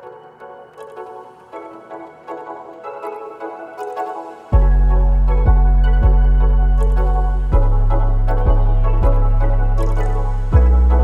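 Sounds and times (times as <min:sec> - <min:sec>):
soft melodic notes: 0:00.0 - 0:11.0.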